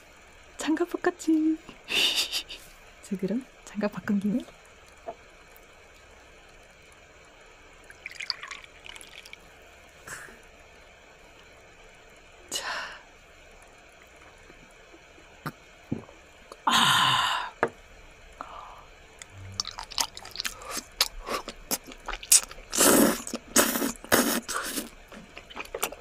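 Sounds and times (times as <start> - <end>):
slurping: 19.2 - 26.0
chewing: 19.5 - 26.0.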